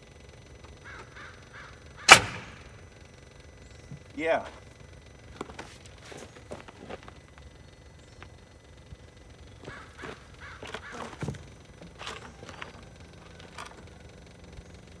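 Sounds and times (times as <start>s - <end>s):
harsh animal calls: 0.8s - 2.1s, 9.6s - 11.3s.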